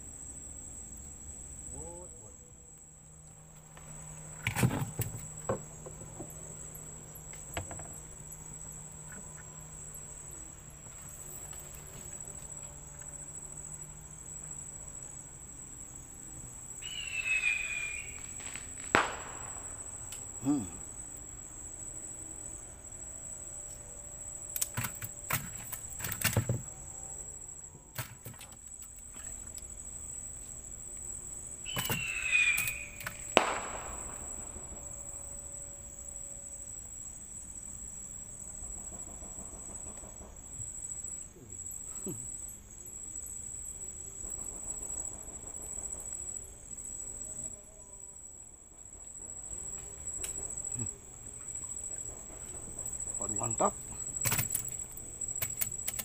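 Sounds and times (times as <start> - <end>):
high-pitched insect chorus: 0.0 - 56.0
sharp clicks: 54.2 - 56.0.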